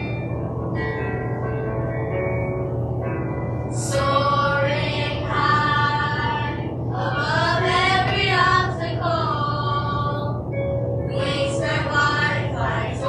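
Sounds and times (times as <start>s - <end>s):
instrumental backing music: 0.0s - 13.0s
children's chorus singing: 3.8s - 10.4s, 11.1s - 13.0s.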